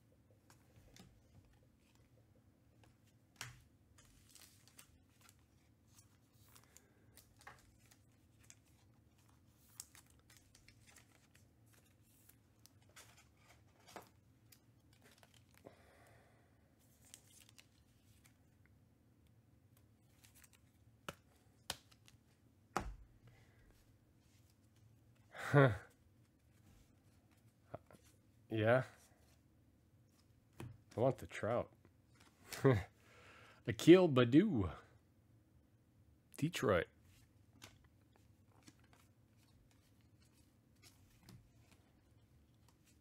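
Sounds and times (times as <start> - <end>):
soft clicks of cards: 19.7 - 22.2, 37.5 - 43.0.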